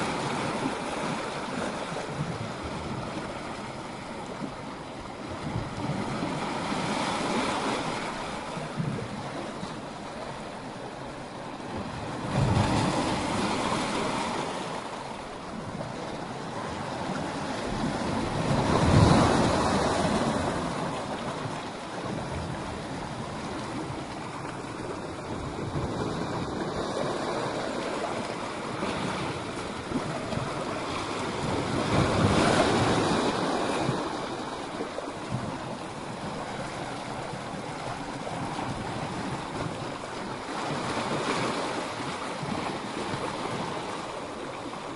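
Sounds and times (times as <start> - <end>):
sea waves breaking against rocks: 0.0 - 44.9.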